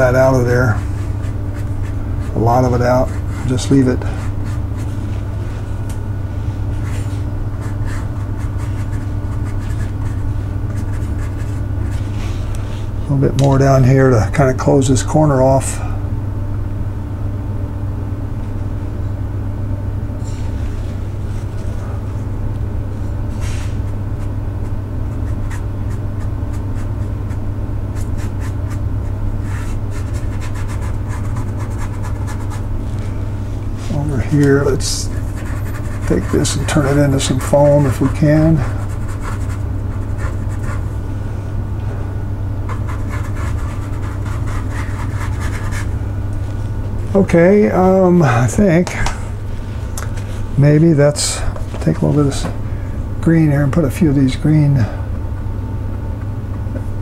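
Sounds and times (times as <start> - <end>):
brush scrubbing on paper: 0.0 - 5.8, 6.4 - 12.9, 29.4 - 33.1, 33.8 - 40.8, 42.7 - 45.9
low electrical hum: 0.0 - 57.0.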